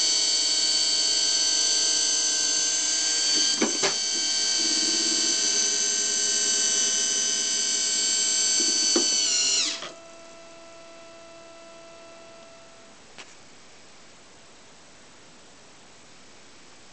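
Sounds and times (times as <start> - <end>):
small electric motor whirring: 0.0 - 12.8
faint steady hum: 0.0 - 16.9.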